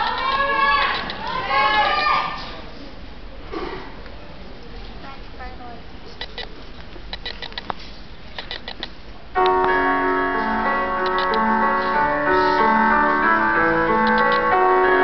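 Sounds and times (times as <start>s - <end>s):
small clicks: 7.1s - 8.9s, 11.0s - 11.4s, 14.0s - 14.4s
keyboard music over speakers: 9.4s - 15.0s.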